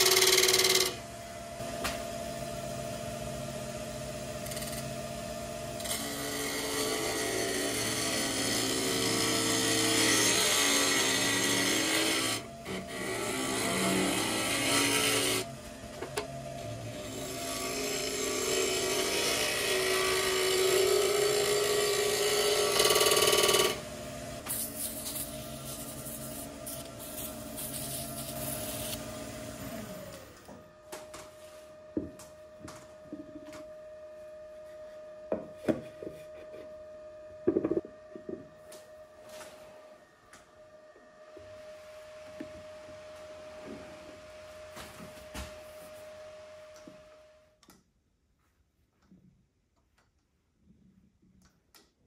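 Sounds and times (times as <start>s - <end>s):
wood lathe spinning while sanding: 0.0s - 30.8s
lathe motor winding down: 0.0s - 30.9s.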